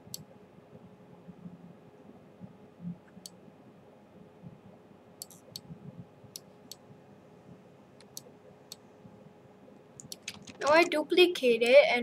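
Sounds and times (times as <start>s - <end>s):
computer mouse buttons clicking: 10.0s - 10.9s.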